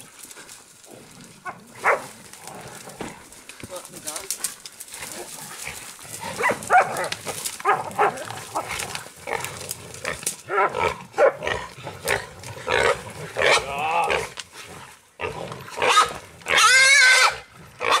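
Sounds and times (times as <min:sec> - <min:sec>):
pig squealing: 0:15.8 - 0:18.0.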